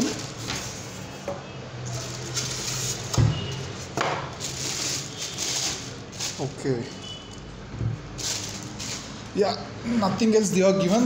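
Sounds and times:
plastic wrapping rustling: 0.0 - 1.2, 1.8 - 9.5
polystyrene foam being pulled: 4.4 - 6.8, 8.2 - 9.3.

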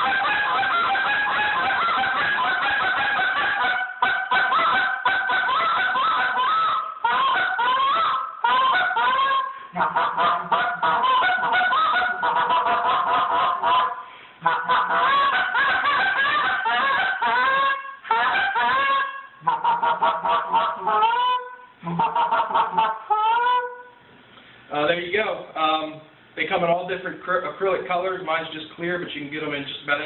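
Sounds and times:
goose call honks and clucks: 0.0 - 23.9.

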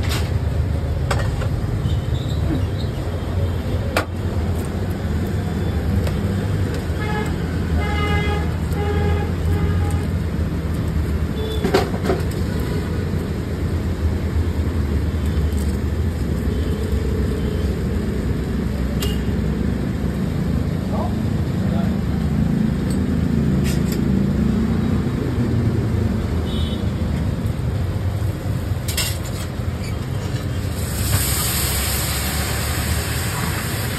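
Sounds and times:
busy road traffic: 0.0 - 33.9
vehicle horns tooting: 26.4 - 27.0.

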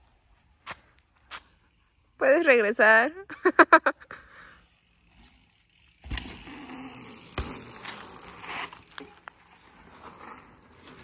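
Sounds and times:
bike tyres rolling on pavement: 0.0 - 2.7, 4.4 - 11.0
bike landing thump: 6.0 - 9.2.

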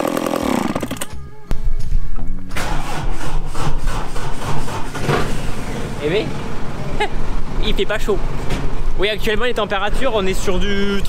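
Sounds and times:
chainsaw running and revving: 0.0 - 1.0
low engine rumble: 1.2 - 11.0.

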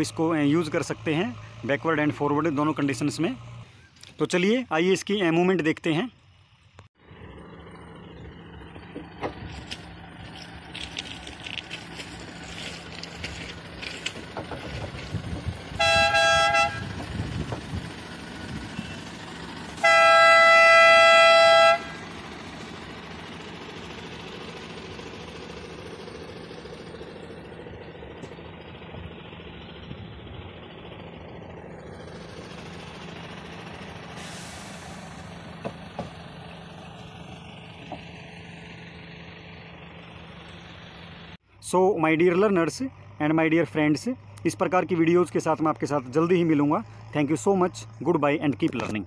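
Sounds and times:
diesel engine humming: 0.0 - 49.0
vehicle horn: 15.7 - 17.1, 19.8 - 22.1.

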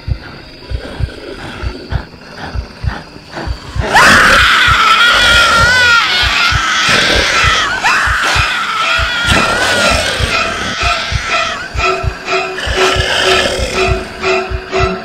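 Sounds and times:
woman screaming: 3.8 - 11.7.

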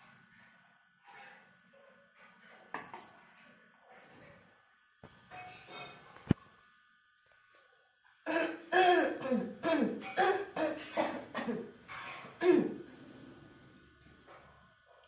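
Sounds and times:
person coughing: 8.3 - 11.7, 12.4 - 12.8.

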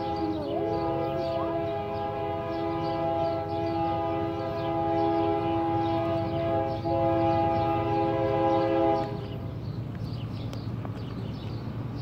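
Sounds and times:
locomotive air horn blast: 0.0 - 9.3
low rumble of train: 0.0 - 12.0.

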